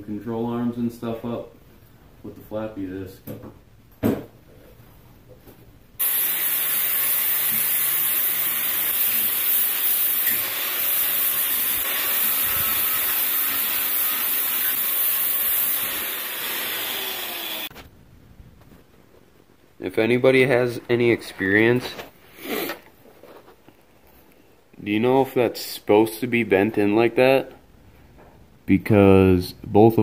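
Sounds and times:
angle grinder grinding metal: 6.0 - 17.7.

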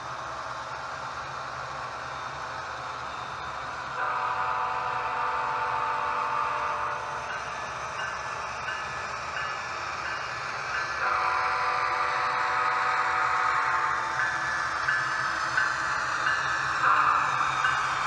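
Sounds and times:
model locomotive horn chord: 4.0 - 7.2, 11.0 - 14.0.

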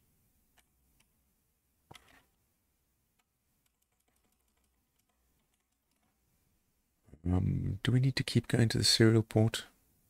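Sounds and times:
computer keyboard keystrokes: 3.6 - 6.1.

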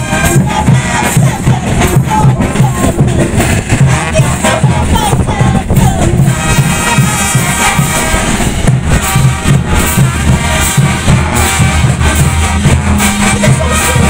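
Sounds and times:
bass drums beating: 0.0 - 14.0
brass and sousaphones: 0.0 - 14.0.

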